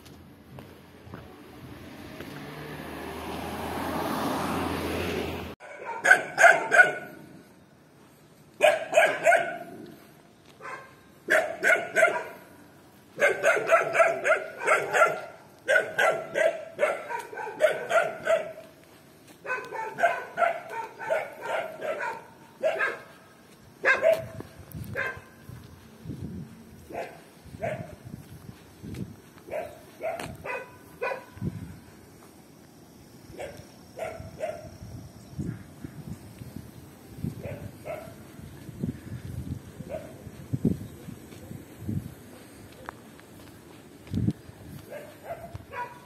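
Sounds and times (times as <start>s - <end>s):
dog barking: 5.6s - 7.3s, 8.6s - 9.9s, 10.6s - 12.5s, 13.2s - 18.7s, 19.4s - 23.2s, 23.8s - 25.3s, 26.9s - 28.0s, 29.5s - 31.4s, 33.4s - 34.7s, 37.4s - 38.2s, 39.8s - 40.2s, 44.9s - 46.0s.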